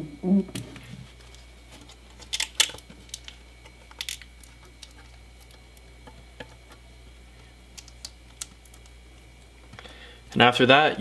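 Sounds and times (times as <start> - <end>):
low steady hum: 0.0 - 11.0
vinyl wrap clicks and crackles: 1.2 - 6.8, 7.7 - 10.5.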